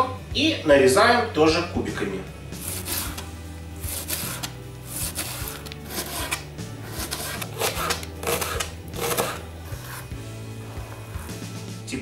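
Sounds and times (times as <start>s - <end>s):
soft background music: 0.0s - 12.0s
knife chopping onion on board: 3.9s - 10.1s.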